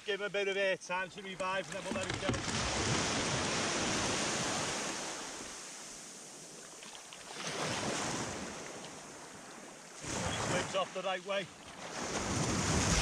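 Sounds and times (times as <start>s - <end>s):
small waves washing up pebble beach: 1.7s - 13.0s.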